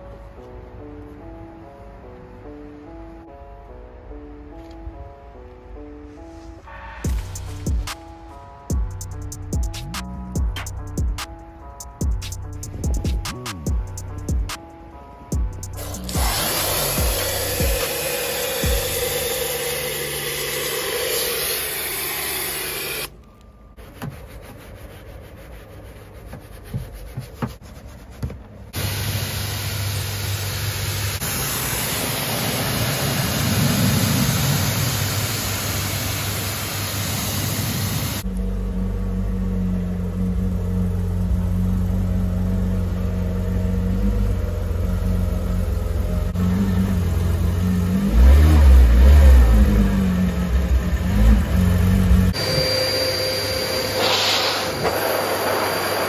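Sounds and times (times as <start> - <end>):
car engine idling and revving: 7.1 - 11.4, 15.4 - 21.5, 29.7 - 52.7.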